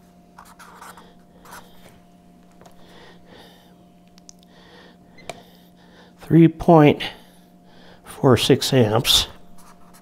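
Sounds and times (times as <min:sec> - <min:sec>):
steady low hum: 0:00.0 - 0:10.0
pen scratching on paper: 0:00.4 - 0:01.7.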